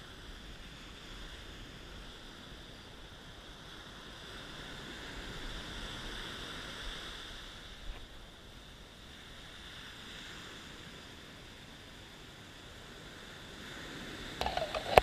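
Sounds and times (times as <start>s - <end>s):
surf washing up a beach: 0.0s - 15.0s
wind on microphone: 13.7s - 15.0s.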